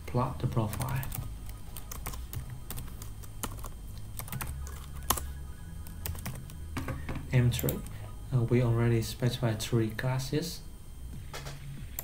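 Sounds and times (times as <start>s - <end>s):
steady low hum: 0.0s - 12.0s
computer keyboard typing: 0.4s - 8.0s.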